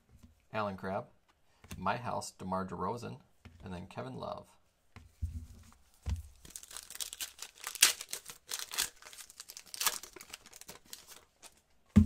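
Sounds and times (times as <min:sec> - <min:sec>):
wrapper tearing and crinkling: 0:06.3 - 0:11.6.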